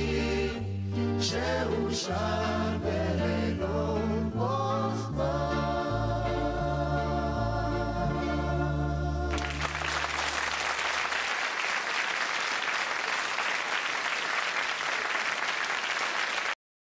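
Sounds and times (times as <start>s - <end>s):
vocal group with folk band: 0.0s - 9.6s
audience applause: 9.3s - 16.6s.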